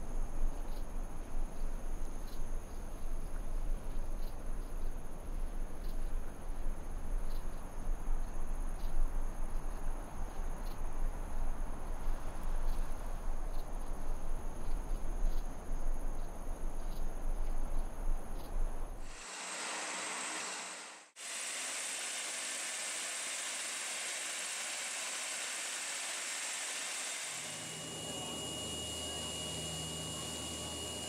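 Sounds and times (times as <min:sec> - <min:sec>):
steady rushing hiss: 0:18.5 - 0:31.0
insects trilling: 0:22.9 - 0:31.0.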